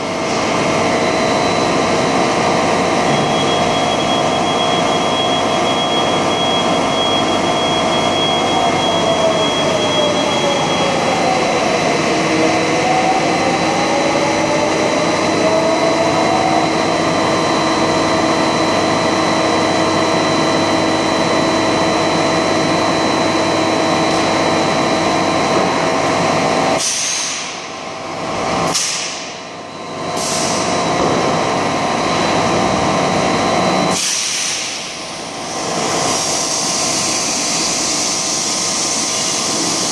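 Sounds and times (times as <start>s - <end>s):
machine drone: 0.0s - 39.9s
sharp hisses of air: 26.8s - 27.6s, 34.0s - 34.8s.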